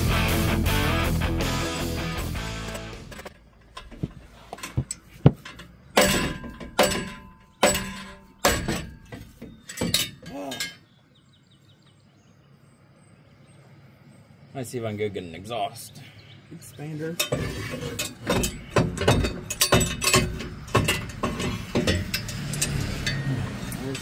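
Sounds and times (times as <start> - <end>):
metal exhaust pipe clanking: 1.6 - 10.9, 17.2 - 24.0.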